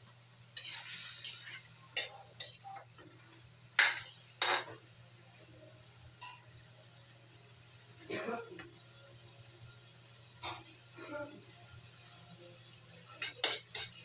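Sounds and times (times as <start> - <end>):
metal spoon scraping a wok: 0.6 - 2.8.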